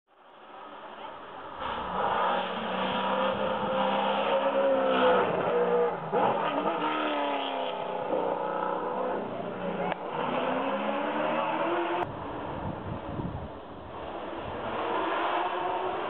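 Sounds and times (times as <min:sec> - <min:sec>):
race car engine revving: 0:01.5 - 0:12.1, 0:14.3 - 0:16.0.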